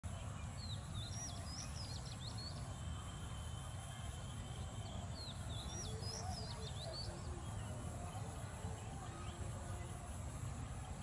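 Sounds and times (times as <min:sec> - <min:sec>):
songbird singing: 0:00.0 - 0:11.0
thin steady high whistle: 0:01.0 - 0:07.3.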